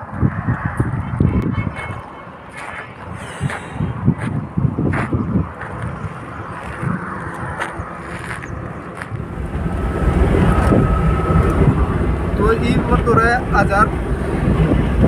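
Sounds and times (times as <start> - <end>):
faint traffic: 0.0 - 15.0
wind: 0.0 - 15.0.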